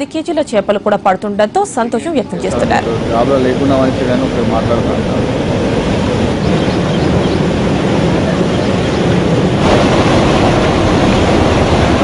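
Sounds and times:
water rushing from culvert: 2.6s - 12.0s.

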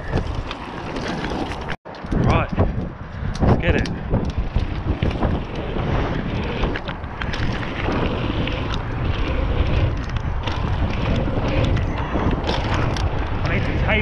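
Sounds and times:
bike rattling: 0.0s - 14.0s
wind buffeting microphone: 0.0s - 14.0s
tyres rumbling on dirt: 3.5s - 14.0s.

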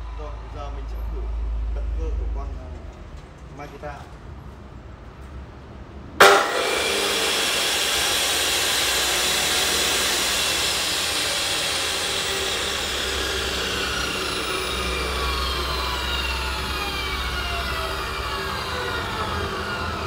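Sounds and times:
saw motor whirring: 6.2s - 20.0s.

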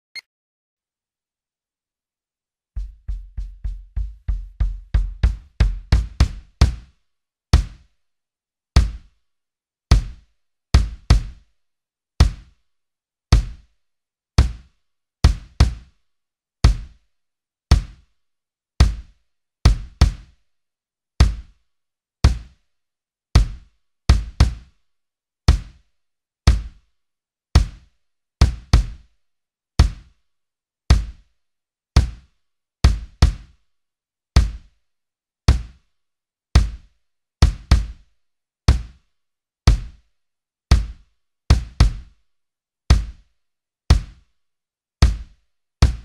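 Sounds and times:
kick drum strikes: 2.8s - 6.8s, 8.8s - 9.0s, 9.9s - 10.2s, 10.8s - 11.4s, 12.2s - 12.5s, 13.4s - 13.6s, 15.3s - 15.8s, 16.6s - 17.0s, 18.8s - 19.0s, 19.7s - 20.2s, 21.2s - 21.4s, 23.4s - 24.5s, 26.5s - 26.8s, 28.4s - 29.0s, 30.9s - 31.2s, 32.9s - 33.4s, 34.4s - 34.7s, 36.6s - 36.8s, 37.4s - 38.0s, 39.7s - 40.0s, 40.7s - 42.1s, 42.9s - 43.2s, 43.9s - 44.1s, 45.0s - 46.0s.

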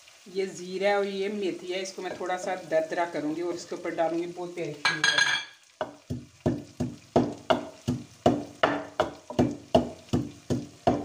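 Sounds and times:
pestle pounding spices in wooden mortar: 5.8s - 11.0s.

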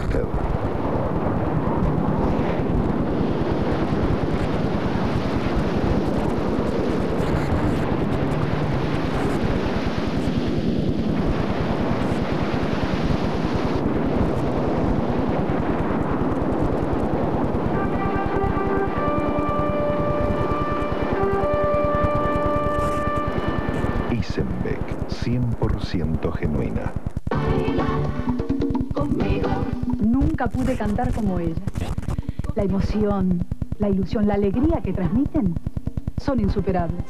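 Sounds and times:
ocean waves breaking: 0.4s - 24.2s.

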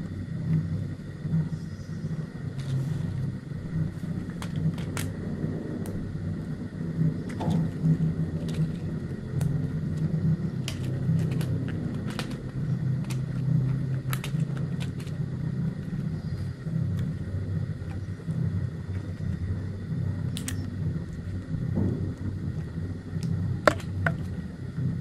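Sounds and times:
low rumble: 0.0s - 25.0s
matchboxes clicking on tiled floor: 2.5s - 5.2s, 5.8s - 6.0s, 7.2s - 19.5s, 20.2s - 21.5s, 22.2s - 24.4s.

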